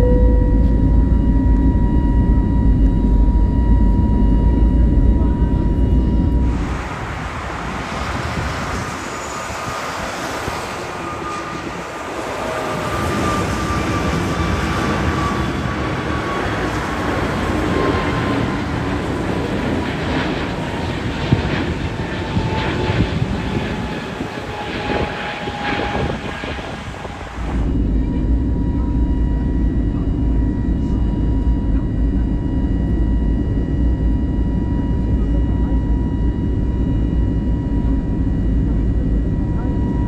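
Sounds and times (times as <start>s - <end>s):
jet aircraft roar with whine: 0.0s - 40.0s.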